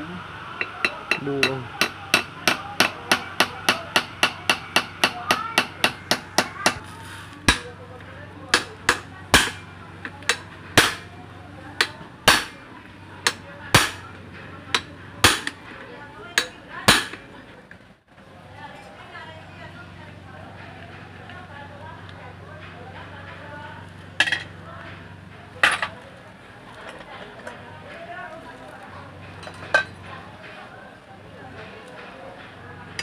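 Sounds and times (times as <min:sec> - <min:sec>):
hammer tapping metal: 0:00.6 - 0:07.8, 0:08.5 - 0:11.1, 0:11.7 - 0:12.6, 0:13.2 - 0:15.7, 0:16.4 - 0:17.2.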